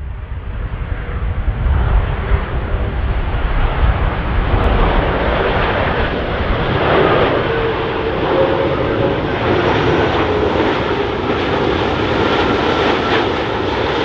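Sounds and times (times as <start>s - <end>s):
jet airliner roar: 0.0s - 14.0s.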